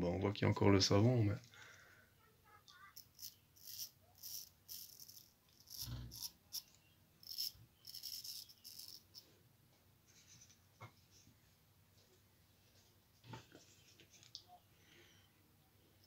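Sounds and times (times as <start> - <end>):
razor scraping stubble: 2.8 - 9.2.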